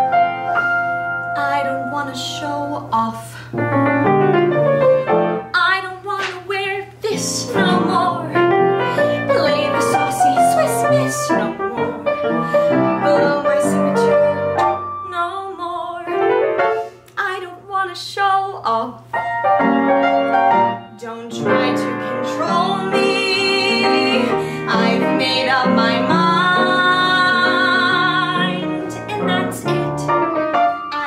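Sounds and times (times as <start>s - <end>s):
upright piano accompaniment: 0.0s - 5.6s, 7.0s - 17.0s, 19.1s - 31.0s
woman singing: 1.4s - 3.5s, 5.5s - 14.4s, 15.0s - 16.4s, 17.2s - 19.1s, 20.8s - 31.0s.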